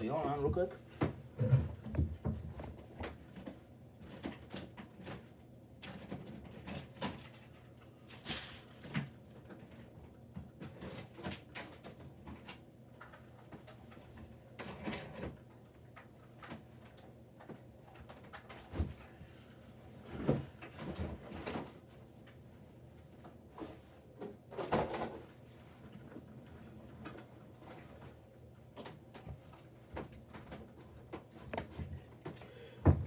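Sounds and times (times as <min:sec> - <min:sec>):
knocks and light clatter: 0:00.0 - 0:07.8, 0:23.0 - 0:33.0.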